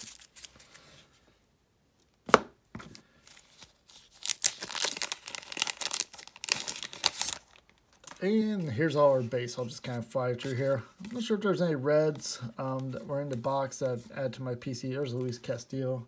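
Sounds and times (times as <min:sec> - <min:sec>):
plastic sleeves crinkling: 0:00.0 - 0:01.0, 0:03.2 - 0:14.1.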